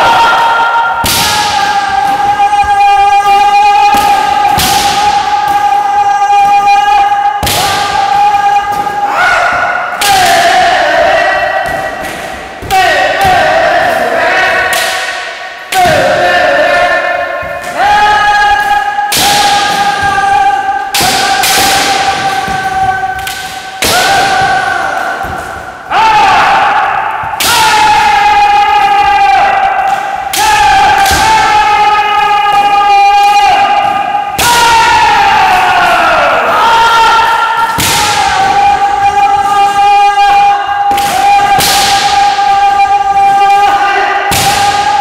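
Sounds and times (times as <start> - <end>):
long high shouts: 0.0 - 11.6
people shouting drawn-out cries: 0.0 - 45.0
bamboo swords striking armour: 1.0 - 2.3, 3.9 - 5.7, 7.4 - 31.8, 37.6 - 38.8, 40.9 - 42.4, 43.7 - 45.0
bamboo sword strikes cracking: 14.7 - 16.0.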